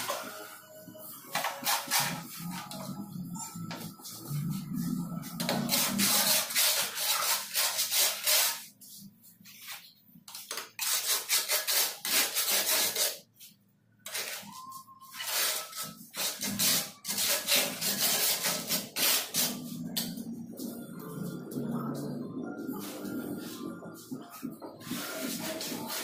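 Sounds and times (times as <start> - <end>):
rough scraping and rubbing: 1.3 - 9.9, 14.1 - 26.0.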